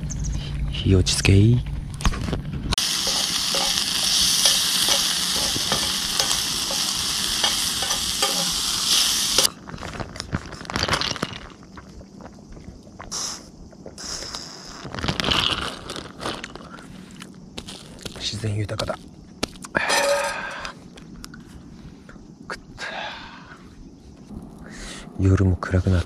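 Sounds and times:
frying pan sizzling: 0:02.8 - 0:09.5.

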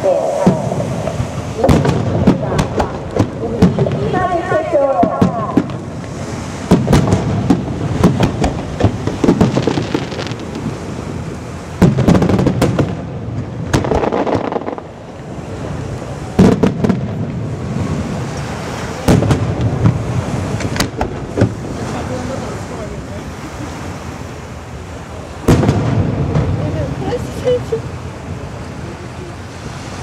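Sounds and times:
firework shells bursting: 0:00.5 - 0:11.0.

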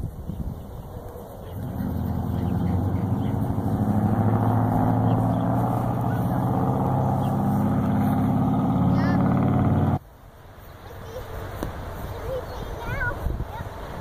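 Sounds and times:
vehicle engine humming: 0:00.0 - 0:10.1.

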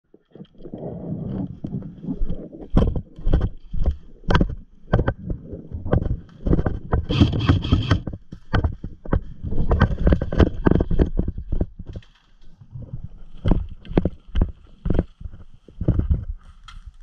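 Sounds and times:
wind on microphone: 0:00.7 - 0:12.0
gear rattling: 0:06.6 - 0:08.1.

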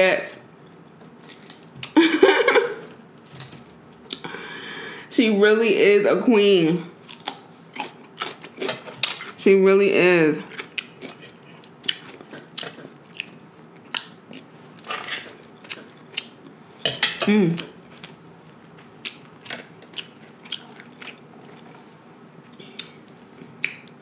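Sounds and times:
chewing crisp cucumber: 0:07.0 - 0:09.4, 0:10.4 - 0:16.6, 0:17.5 - 0:24.0.

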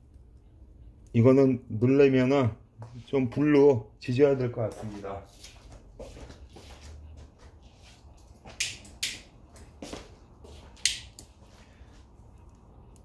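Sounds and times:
lighter piezo ignition clicking: 0:08.6 - 0:09.3, 0:10.8 - 0:11.3.

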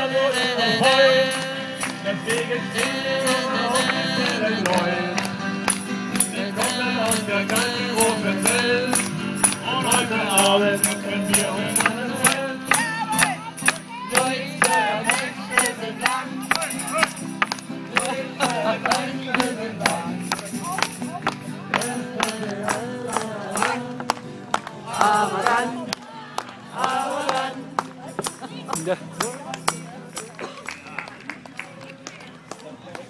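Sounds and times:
jingling beat: 0:00.0 - 0:24.2, 0:24.8 - 0:25.9, 0:26.8 - 0:30.6
acoustic guitar strumming: 0:00.0 - 0:30.6
folk band playing: 0:00.0 - 0:32.2.

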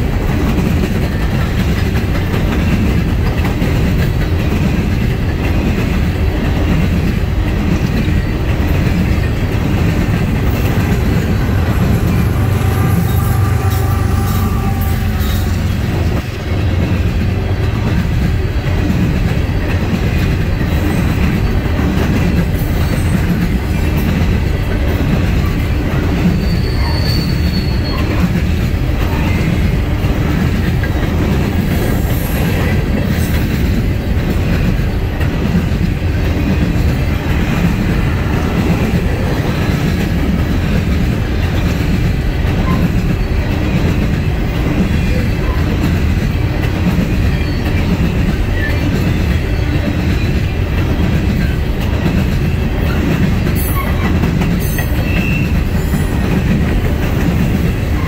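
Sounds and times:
diesel locomotive engines: 0:00.0 - 0:58.0
steel wheels rumbling on rail: 0:00.0 - 0:58.0
train wheel squeal: 0:07.8 - 0:17.0, 0:20.2 - 0:33.7, 0:41.3 - 0:46.2, 0:46.9 - 0:56.9, 0:57.5 - 0:58.0.

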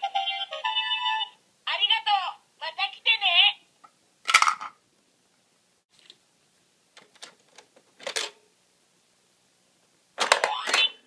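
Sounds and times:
plastic toy machine clicks and knocks: 0:04.3 - 0:04.8, 0:07.0 - 0:08.4, 0:10.2 - 0:10.9.

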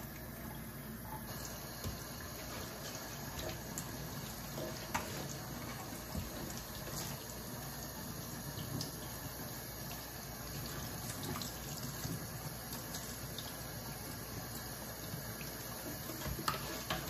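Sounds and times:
tap water running into sink: 0:01.2 - 0:17.0.

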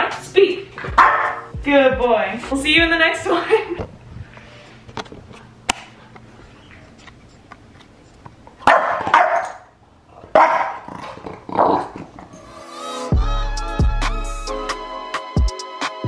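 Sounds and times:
dog barking: 0:01.0 - 0:01.5, 0:08.6 - 0:09.7, 0:10.3 - 0:10.9.

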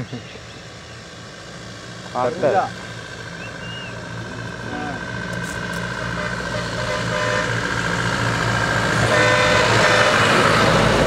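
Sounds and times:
motor vehicle engine running: 0:00.0 - 0:11.0.

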